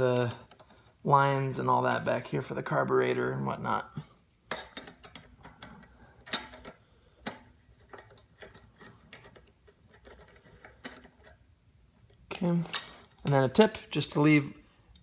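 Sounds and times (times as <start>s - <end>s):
nut driver clicking and scraping: 4.5s - 11.4s.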